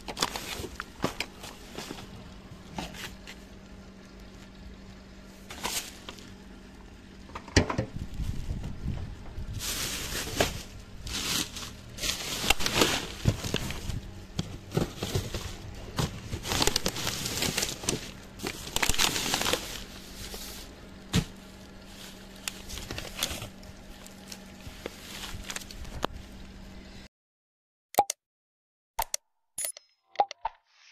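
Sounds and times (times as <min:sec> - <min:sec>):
plastic bags and bottles crinkling: 0:00.0 - 0:04.6, 0:05.4 - 0:06.4, 0:08.0 - 0:26.4
faint steady hum: 0:00.0 - 0:27.1.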